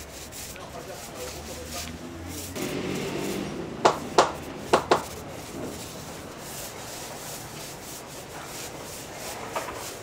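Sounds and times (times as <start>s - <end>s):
paint rollers rubbing on wood: 0.0s - 10.0s
sharp knocks: 3.8s - 5.8s.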